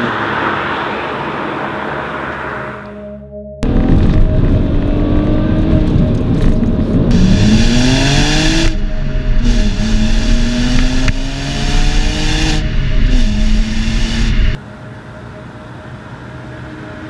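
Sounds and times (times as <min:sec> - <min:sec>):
car engine revving through gears: 0:03.6 - 0:14.6.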